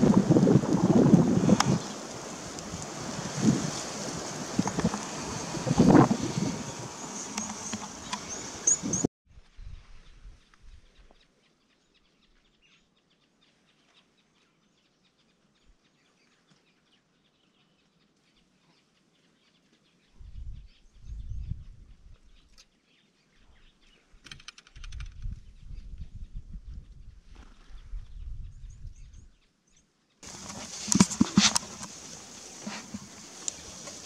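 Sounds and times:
low rumbles on microphone: 0:00.0 - 0:10.9, 0:20.2 - 0:22.4, 0:24.9 - 0:29.3
rattle of clicks: 0:24.2 - 0:25.3.

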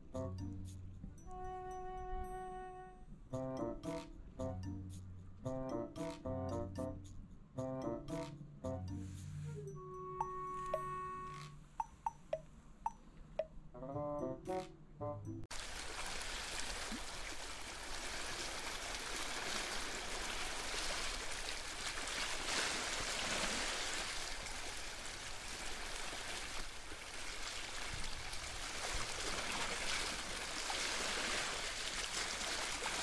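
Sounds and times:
music: 0:00.0 - 0:15.5
running water rushing: 0:15.5 - 0:33.0.

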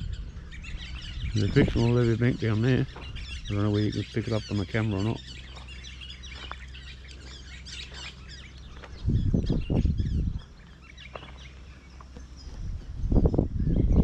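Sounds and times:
birds chirping: 0:00.0 - 0:14.0
loud low rumble: 0:08.6 - 0:10.5.

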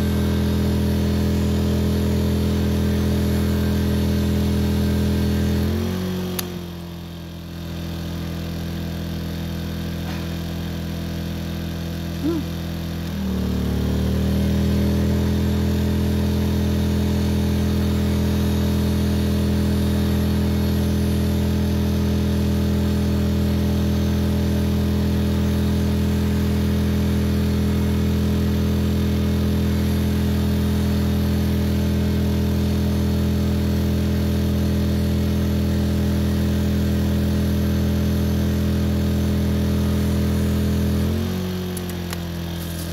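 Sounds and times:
motor hum: 0:12.2 - 0:22.9, 0:38.1 - 0:42.9.

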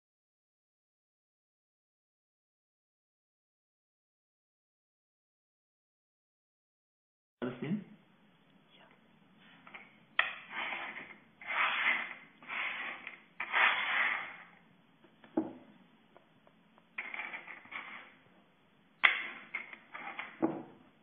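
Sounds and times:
hands rubbing wooden tabletop: 0:09.4 - 0:14.6, 0:17.0 - 0:18.2.

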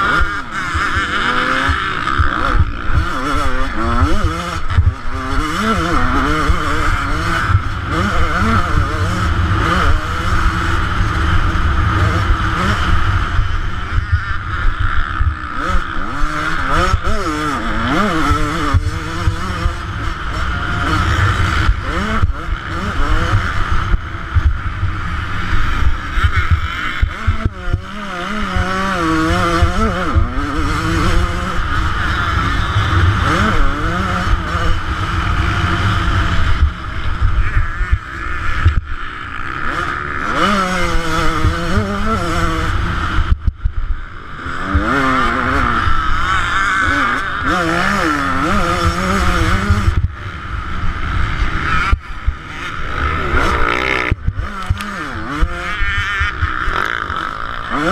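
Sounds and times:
two-stroke motorcycle engine revving: 0:00.0 - 0:57.9
wind rumble on microphone: 0:17.9 - 0:56.7.

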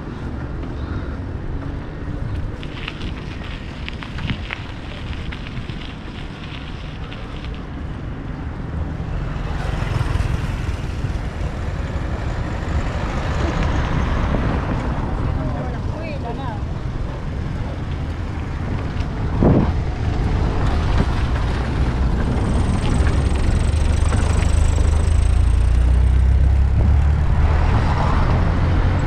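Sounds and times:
broad vehicle-like noise: 0:00.0 - 0:29.0
wind buffeting microphone: 0:01.3 - 0:29.0.

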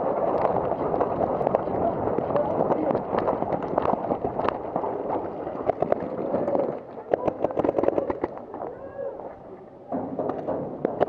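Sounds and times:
wind on microphone: 0:00.0 - 0:09.1
running footsteps on dirt: 0:00.0 - 0:11.0
paintball guns firing: 0:02.6 - 0:08.4.

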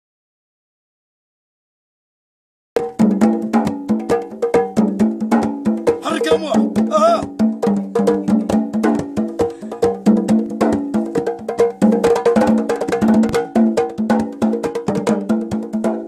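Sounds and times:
hand drum played: 0:02.8 - 0:16.0.

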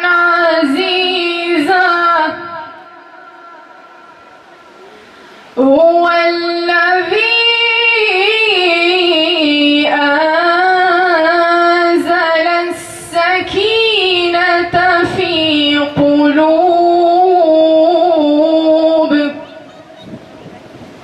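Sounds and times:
woman reciting melodically: 0:00.0 - 0:04.3, 0:05.6 - 0:19.8
brief breath: 0:04.8 - 0:05.6.

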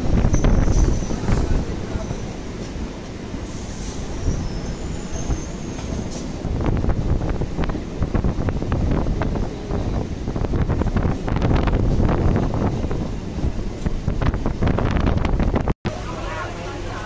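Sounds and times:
wind on microphone: 0:00.0 - 0:02.1, 0:06.2 - 0:15.8
train rumbling: 0:00.0 - 0:17.0.

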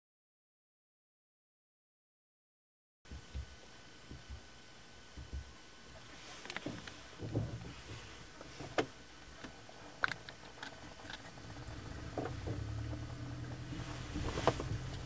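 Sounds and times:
low airplane engine drone: 0:03.1 - 0:15.0.

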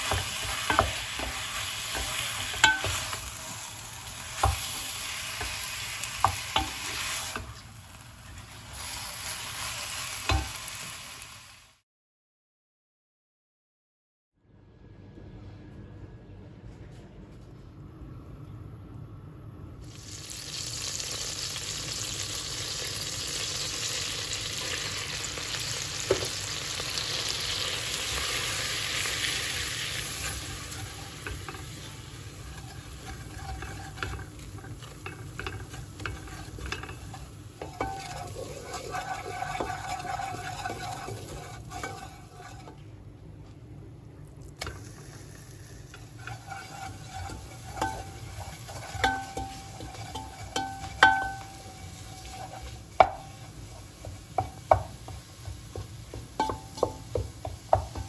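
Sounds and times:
butter sizzling in a pot: 0:00.0 - 0:11.8, 0:19.9 - 0:42.8, 0:44.6 - 0:58.0
wooden spoon scraping a pot: 0:30.0 - 0:42.8, 0:45.9 - 0:58.0
spoon knocking against pot: 0:49.0 - 0:51.6, 0:53.0 - 0:53.3, 0:54.4 - 0:58.0.

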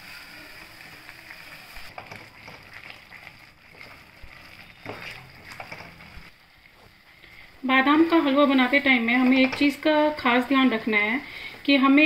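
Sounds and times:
paste sizzling and bubbling: 0:00.0 - 0:12.0
spatula stirring: 0:01.9 - 0:07.4.

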